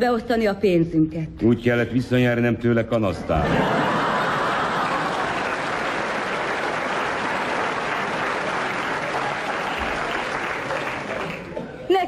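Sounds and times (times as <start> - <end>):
audience applauding: 3.5 - 12.0.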